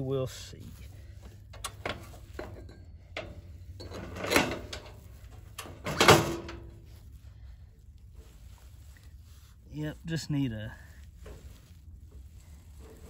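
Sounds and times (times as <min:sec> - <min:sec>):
metal scraping and knocking: 0:01.5 - 0:06.7.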